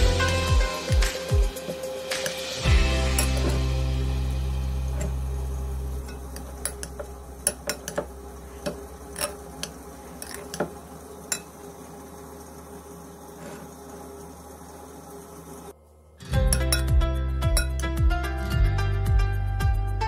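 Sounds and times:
metal spoon clinking on glass bowl: 16.5 - 16.9, 17.6 - 17.9.

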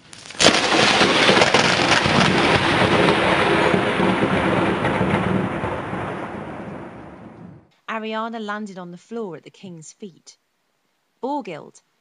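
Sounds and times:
sharp crash: 0.0 - 7.7.

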